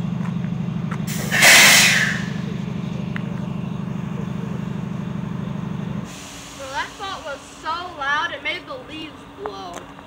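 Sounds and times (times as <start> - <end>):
diesel locomotive idling: 0.0 - 10.0
compressed air hissing: 1.1 - 2.4, 6.1 - 7.8.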